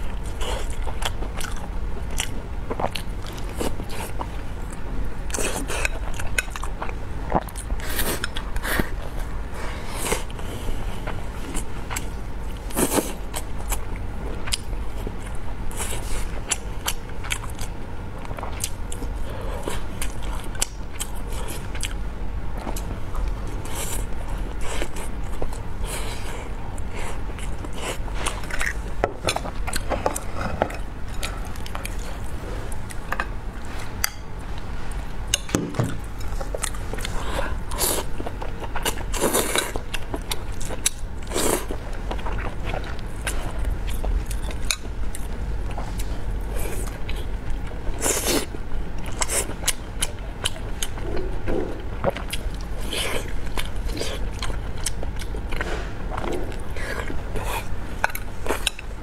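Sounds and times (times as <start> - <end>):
chewing and mouth sounds: 0.0 - 59.0
steady low hum: 0.0 - 59.0.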